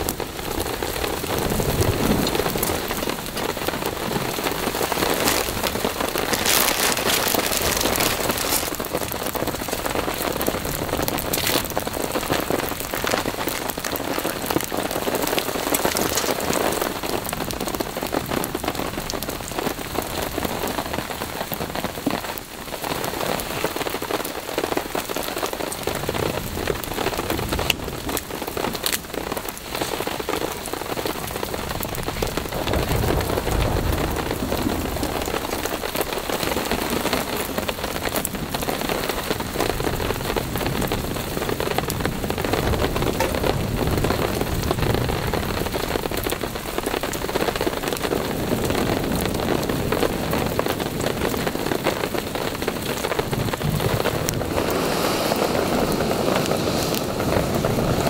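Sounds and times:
heavy rain falling: 0.0 - 58.0
low rumble: 53.4 - 56.0.

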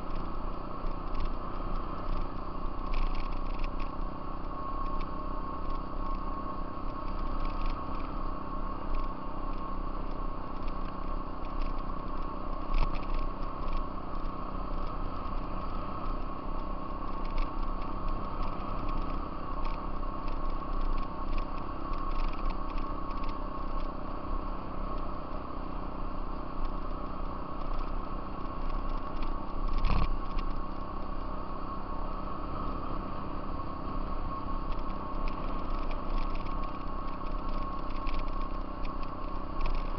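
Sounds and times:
off-road vehicle engine rumble: 0.0 - 39.9
steady whine: 0.0 - 39.9
small clicks: 0.8 - 4.0, 6.9 - 8.1, 8.9 - 23.9, 26.6 - 30.6, 34.6 - 39.9.

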